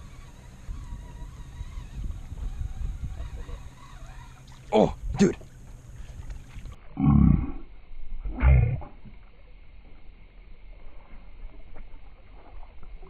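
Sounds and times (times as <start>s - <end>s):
slowed shouts as deep roars: 7.0s - 7.6s.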